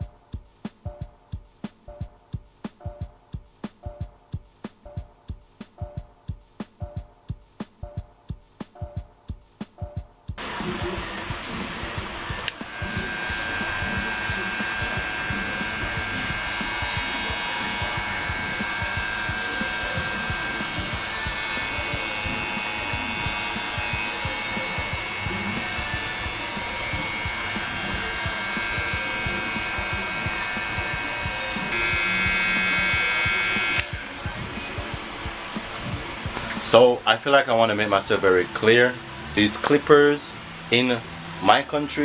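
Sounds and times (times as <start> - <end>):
hair clipper motor humming: 10.4 - 36.6.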